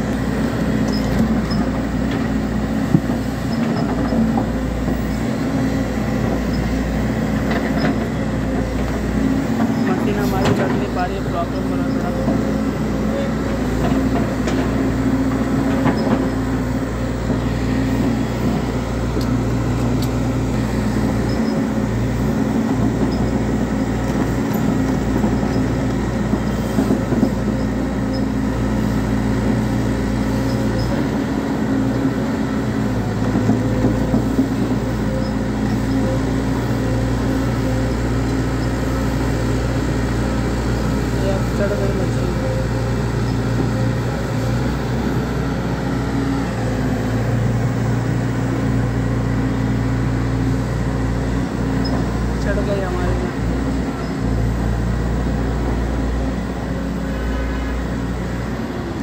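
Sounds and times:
excavator diesel engine under load: 0:00.0 - 0:59.0
steel tracks clanking over rocks: 0:09.5 - 0:12.6.

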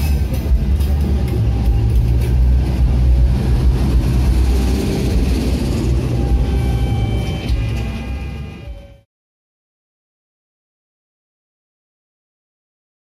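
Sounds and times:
train wheels rumbling on rail: 0:00.0 - 0:09.0.

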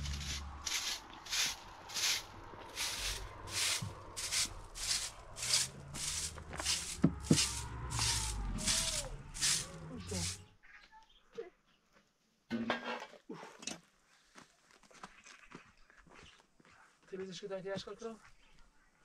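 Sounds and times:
broom sweeping: 0:00.0 - 0:10.5.

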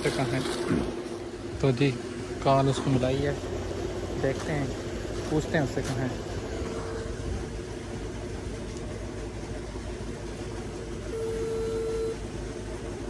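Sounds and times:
pump motor humming: 0:00.0 - 0:13.0
phone ringback beep: 0:06.7 - 0:07.2, 0:11.1 - 0:12.2.

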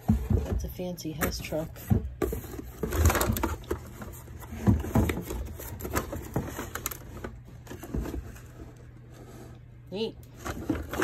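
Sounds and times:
cardboard boxes knocking and scraping: 0:00.0 - 0:08.8.

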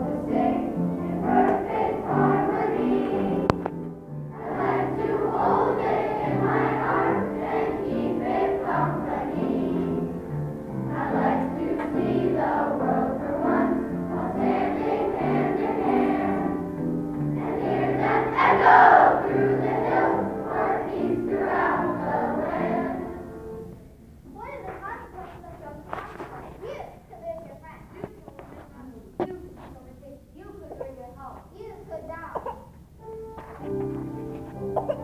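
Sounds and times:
children's choir singing: 0:00.0 - 0:23.8.

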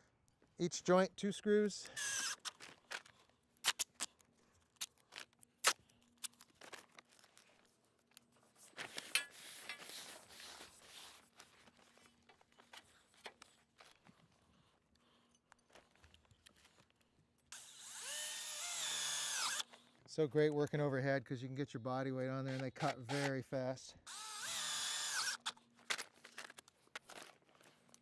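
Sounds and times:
duct tape pulled off roll: 0:03.6 - 0:04.2, 0:05.6 - 0:06.8.

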